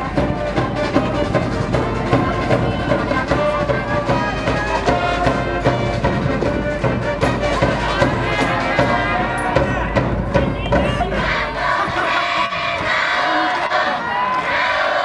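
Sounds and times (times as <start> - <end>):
brass band playing: 0.0 - 11.9
steady drum beat: 0.0 - 15.0.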